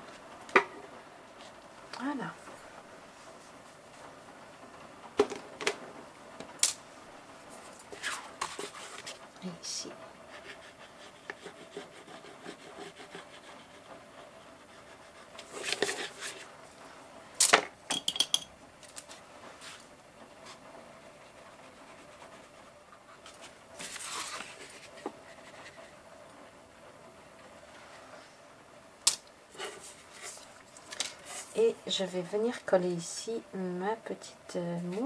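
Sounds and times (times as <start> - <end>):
paper sliding and rustling: 7.5 - 9.2, 15.4 - 16.5, 19.0 - 19.9, 23.2 - 25.9, 29.5 - 31.6
pastel scratching on paper: 7.9 - 9.2, 10.3 - 16.5.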